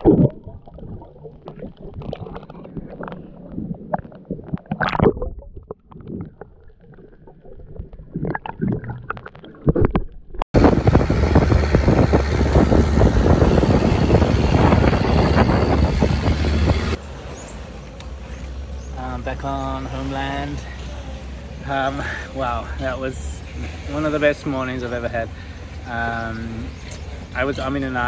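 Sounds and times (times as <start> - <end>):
rushing wind and water: 0.0 - 17.0
water sloshing and gurgling: 0.0 - 17.0
boat engine deep hum: 10.6 - 17.0.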